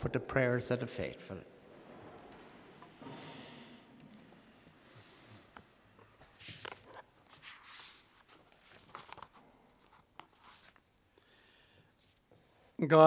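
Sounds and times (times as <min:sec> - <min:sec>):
rustling and shuffling: 0:04.0 - 0:11.1.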